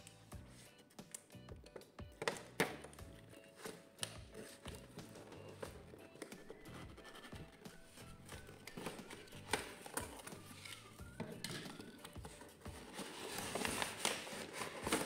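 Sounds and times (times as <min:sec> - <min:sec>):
cardboard rustling: 0:03.3 - 0:15.0.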